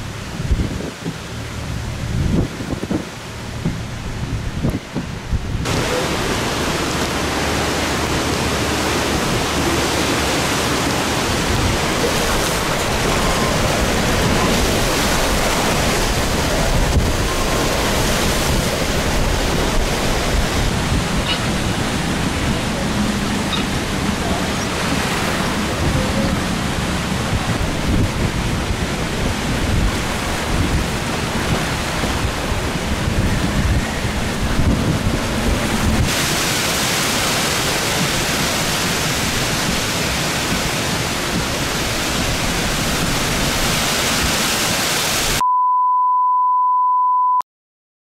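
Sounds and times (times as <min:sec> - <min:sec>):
wind buffeting microphone: 0:00.0 - 0:44.9
hissing wind and rain: 0:00.0 - 0:45.4
rushing floodwater: 0:00.0 - 0:45.4
steady electronic beep: 0:45.4 - 0:47.4.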